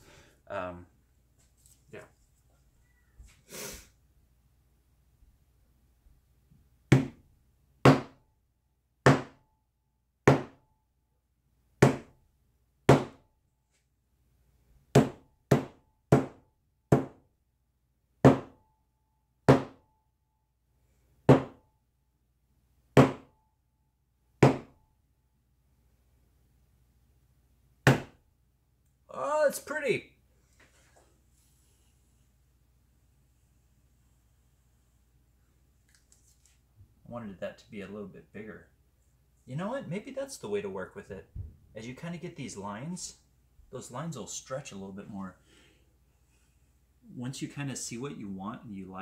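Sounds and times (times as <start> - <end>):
hammer knocking on hard panel: 6.9 - 7.2, 9.1 - 9.4, 18.2 - 18.6, 19.5 - 19.8, 21.3 - 21.6, 23.0 - 23.3, 24.4 - 24.7.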